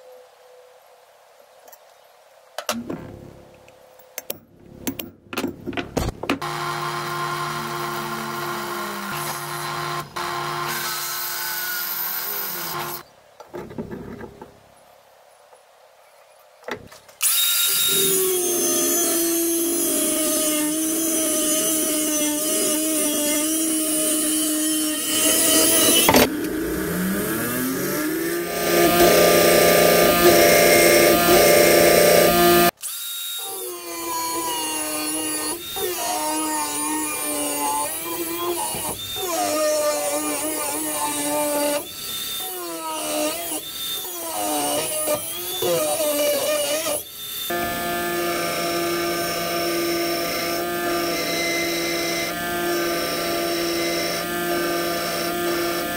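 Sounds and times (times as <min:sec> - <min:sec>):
angle grinder cutting steel: 0:06.4 - 0:13.0, 0:17.2 - 0:55.9
drill press drilling steel: 0:28.4 - 0:32.7, 0:33.4 - 0:55.9.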